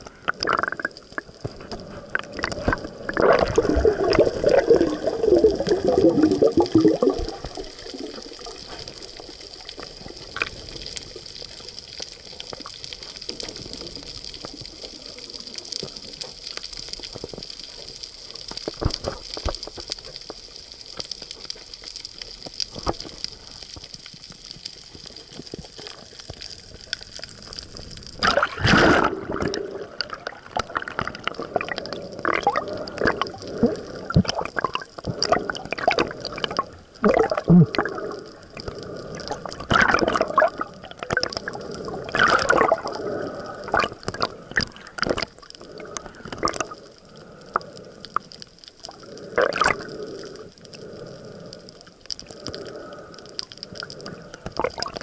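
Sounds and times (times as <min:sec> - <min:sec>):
underwater hiss: 0:00.0 - 0:16.1, 0:24.6 - 0:55.0
underwater bubbling gurgle: 0:00.0 - 0:55.0
water splashing: 0:00.3 - 0:16.4, 0:25.8 - 0:47.8
faint clicks: 0:37.7 - 0:55.0.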